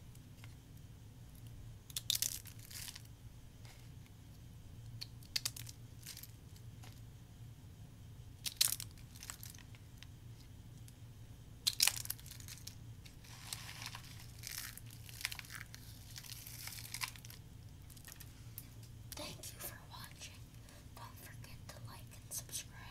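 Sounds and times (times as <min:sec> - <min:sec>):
soap crackling between fingers: 0:01.9 - 0:03.0, 0:04.9 - 0:06.3, 0:08.4 - 0:10.1, 0:11.6 - 0:19.2.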